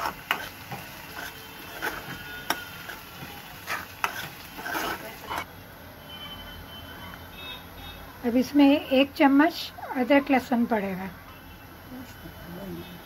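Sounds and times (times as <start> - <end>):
frying sizzle: 0.0 - 5.5
metal ladle scraping a pan: 0.0 - 5.5.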